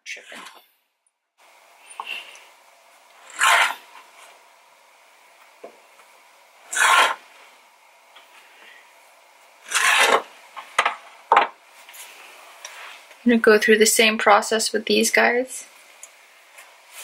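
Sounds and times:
knife scraping plastic board: 3.2s - 3.9s, 6.7s - 7.2s, 9.7s - 10.3s
serrated knife sawing dough: 3.2s - 3.9s, 6.7s - 7.3s, 9.6s - 10.3s.

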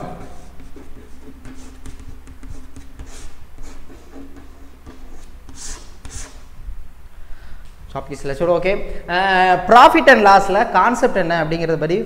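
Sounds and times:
chalk scratching on blackboard: 0.1s - 6.5s.

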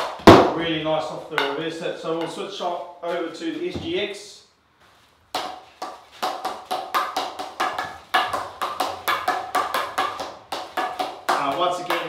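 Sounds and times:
hockey stick tapping ball: 1.4s - 1.6s, 5.3s - 12.0s.

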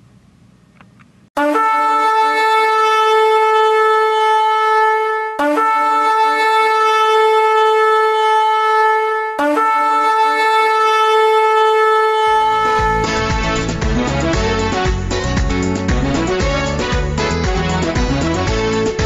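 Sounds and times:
horn long steady blasts: 1.4s - 19.0s.

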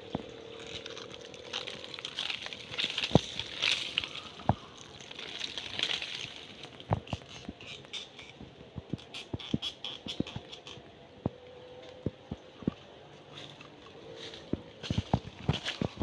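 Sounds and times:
fingers scraping dry mud: 0.1s - 10.8s.

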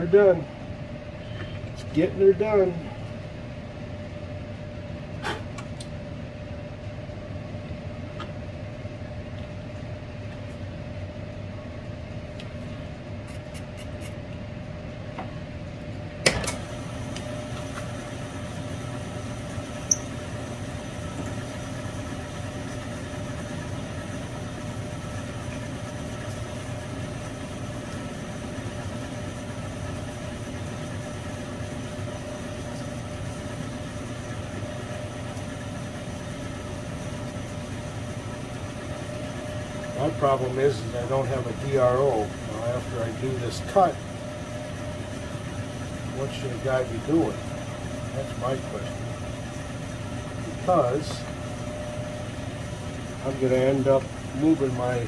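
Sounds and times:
milling machine whining: 16.2s - 55.0s.

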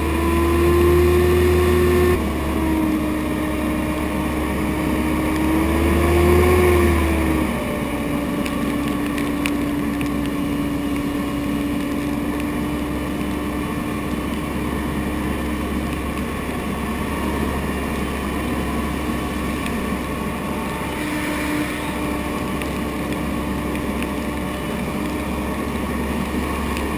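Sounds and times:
boat engine running: 0.0s - 26.9s.

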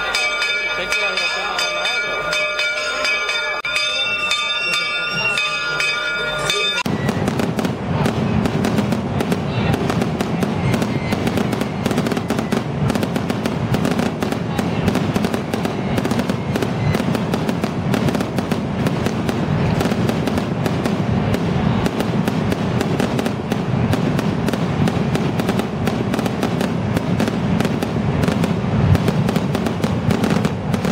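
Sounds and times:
fireworks bangs and crackles: 6.5s - 30.9s.

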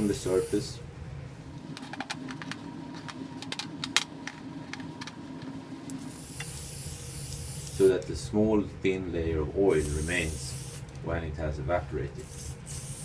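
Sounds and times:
steady hum: 0.0s - 13.0s
aerosol spray can hissing: 6.0s - 7.9s, 9.7s - 10.9s, 12.2s - 13.0s.

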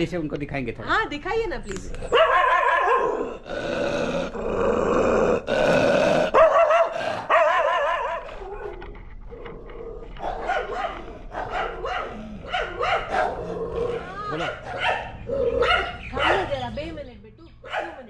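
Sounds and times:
dogs barking and yowling: 2.0s - 3.5s, 6.2s - 16.9s, 17.6s - 18.0s.

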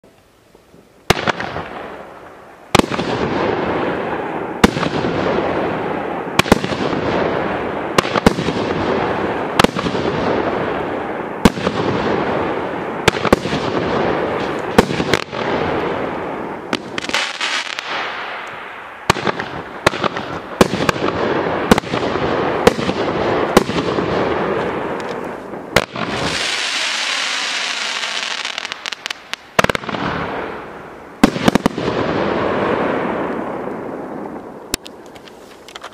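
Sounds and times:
firework bangs: 1.1s - 35.9s
firework hiss: 24.4s - 30.8s.

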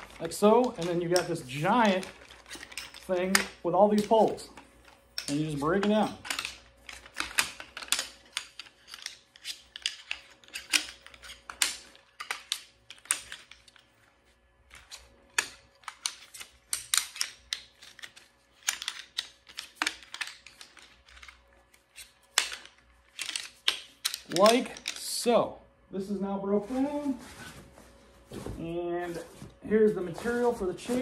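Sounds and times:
metal chair poles clicking and clacking: 0.0s - 13.9s, 22.0s - 25.3s.

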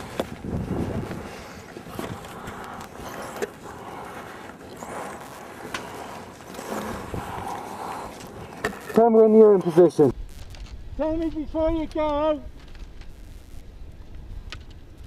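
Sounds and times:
wind on microphone: 0.0s - 3.3s, 6.8s - 8.6s.

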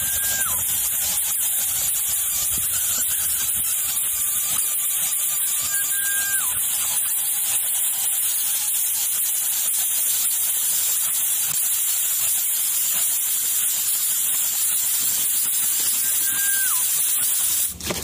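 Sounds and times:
short falling whistle: 0.0s - 0.8s, 2.2s - 4.6s, 5.4s - 7.2s, 15.8s - 17.5s
loud steady hiss: 0.0s - 17.8s.

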